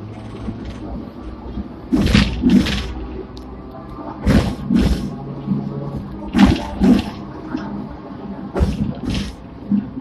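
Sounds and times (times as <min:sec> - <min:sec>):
tram wheels knocking over rail joints: 0:01.9 - 0:03.0, 0:08.5 - 0:09.5.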